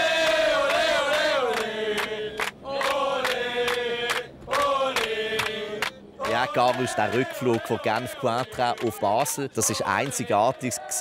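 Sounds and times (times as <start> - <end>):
men chanting in unison: 0.0 - 11.0.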